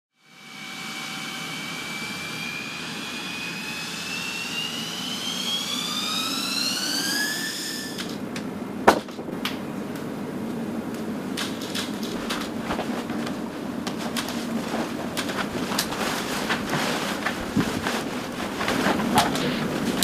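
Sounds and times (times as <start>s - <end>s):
jet engine whine rising: 0.2s - 8.3s.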